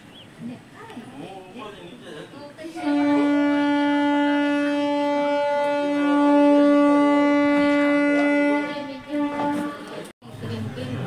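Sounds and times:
locomotive horn blast: 0:02.7 - 0:10.1.

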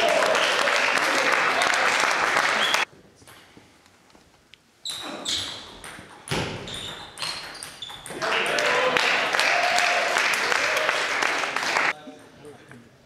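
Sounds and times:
people clapping: 0:00.0 - 0:02.9, 0:08.2 - 0:12.0.

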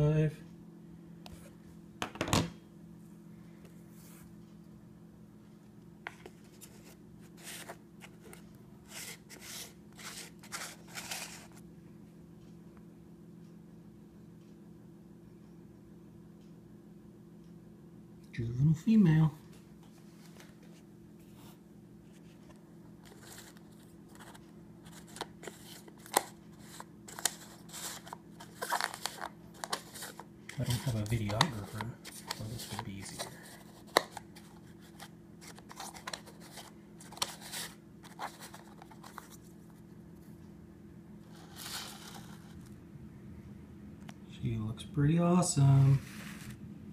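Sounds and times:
faint low hum: 0:00.0 - 0:46.9
plastic cup rustling scrapes: 0:08.9 - 0:11.6, 0:24.9 - 0:39.4, 0:41.3 - 0:42.6, 0:46.0 - 0:46.6.

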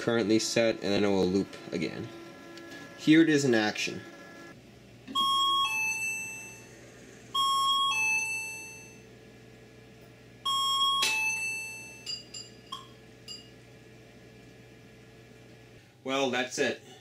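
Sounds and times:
light clinks: 0:12.0 - 0:13.6.

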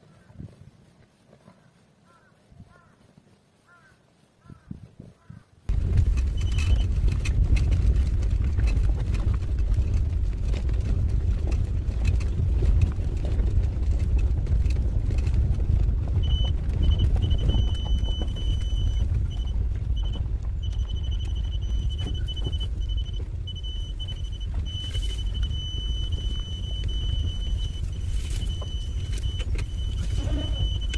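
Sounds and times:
car driving over gravel: 0:05.7 - 0:30.9
high beeping tone: 0:16.2 - 0:30.9.

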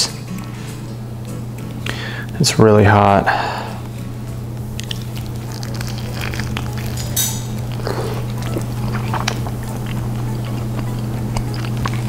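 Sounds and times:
steady low hum: 0:00.0 - 0:12.0
person chewing food: 0:04.6 - 0:12.0.

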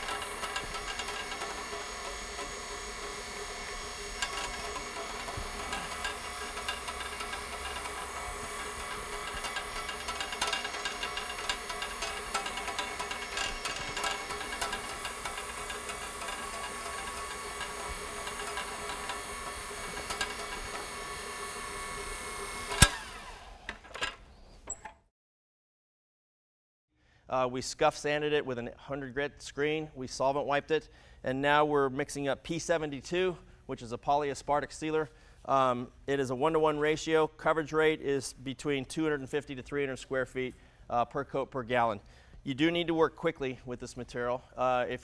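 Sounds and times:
scrubbing hiss of sanding: 0:00.0 - 0:22.4
floor buffer motor hum: 0:00.0 - 0:23.9.

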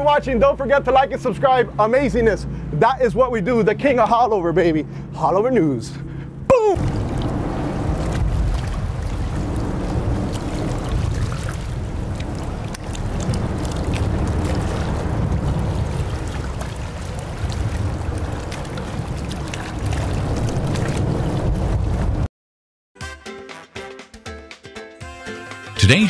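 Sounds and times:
boat engine rumble: 0:00.0 - 0:22.3
water splashing: 0:06.5 - 0:22.2.

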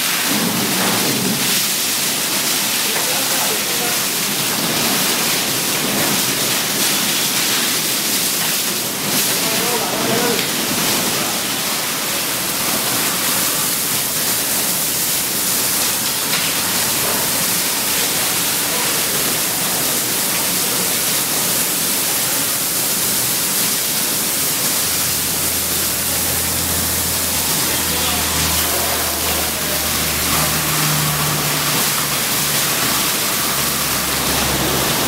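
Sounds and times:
fire hose spraying water: 0:00.0 - 0:35.0.

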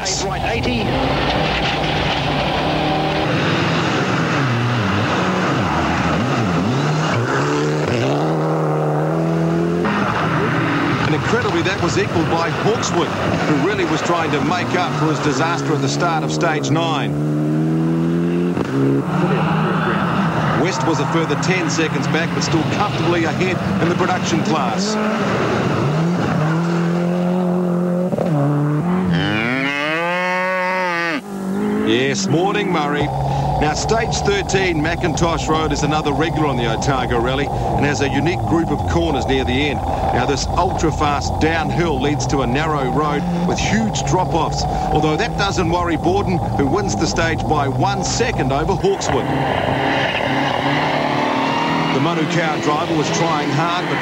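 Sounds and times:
rally car engine revving: 0:00.0 - 0:54.0
tyre and road noise: 0:00.0 - 0:54.0
cow mooing loudly: 0:29.0 - 0:32.1.

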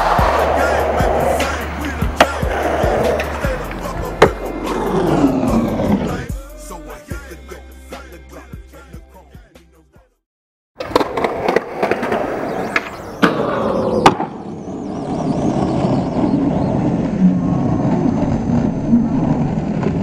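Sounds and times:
skateboard clacking on concrete: 0:00.0 - 0:04.4, 0:10.8 - 0:14.4
skateboard wheels rolling: 0:00.0 - 0:06.3, 0:10.8 - 0:20.0.

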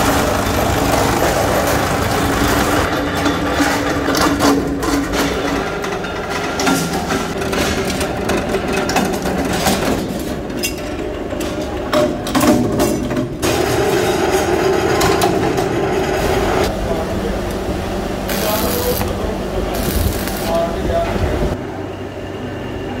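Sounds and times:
machine hum: 0:00.0 - 0:23.0.

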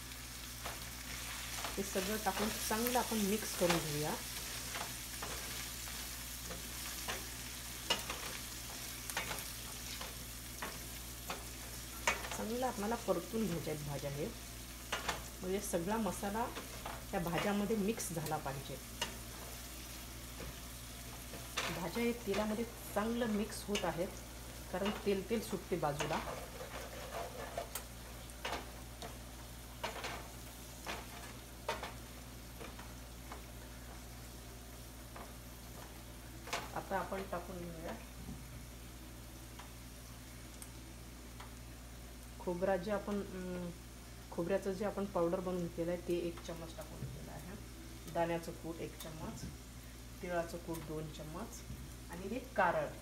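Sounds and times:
vegetables sizzling in oil: 0:00.0 - 0:53.0
wooden spoon scraping a pan: 0:21.2 - 0:29.2
wooden spatula scraping pan: 0:25.9 - 0:27.8.

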